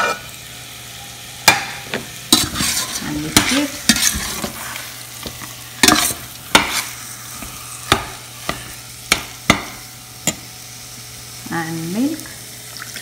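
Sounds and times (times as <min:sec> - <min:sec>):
metal spatula scraping saucepan: 0:00.0 - 0:00.3, 0:02.3 - 0:08.8
faint sizzle: 0:00.0 - 0:13.0.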